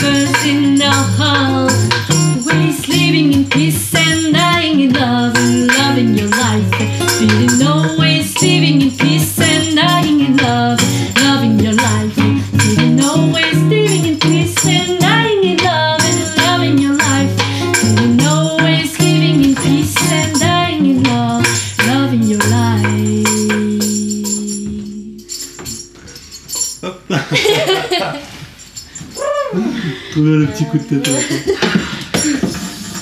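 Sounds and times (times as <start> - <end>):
person singing: 0.0 - 26.0, 29.2 - 32.5
strummed guitar: 0.0 - 26.2.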